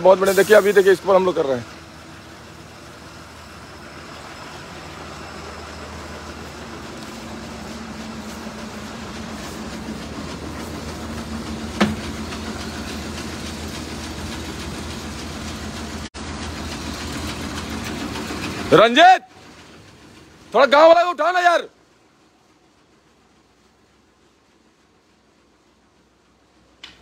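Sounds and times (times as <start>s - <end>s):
truck engine rumbling: 0.0s - 27.0s
sharp clank: 11.7s - 12.2s.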